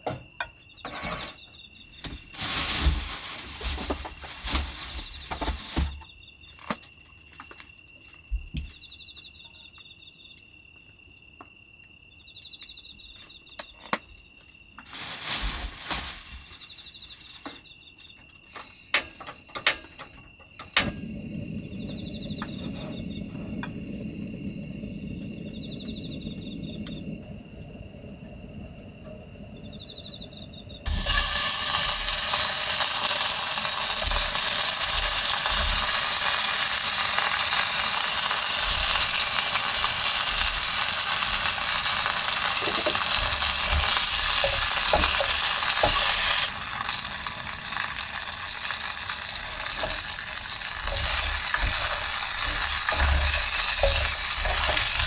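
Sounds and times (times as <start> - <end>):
crickets chirping: 0.0 - 55.0
rustling and handling noises: 2.4 - 6.0, 14.8 - 17.6
gas burner rushing: 20.7 - 55.0.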